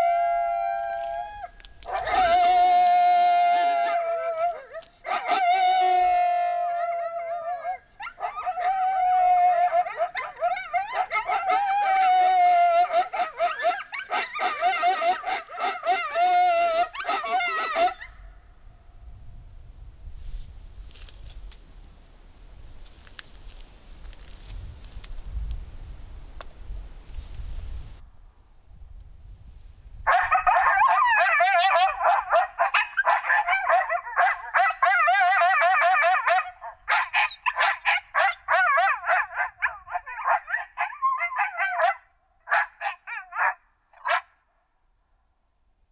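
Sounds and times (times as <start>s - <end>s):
coyotes howling and yipping: 0.0s - 18.3s, 30.1s - 44.2s.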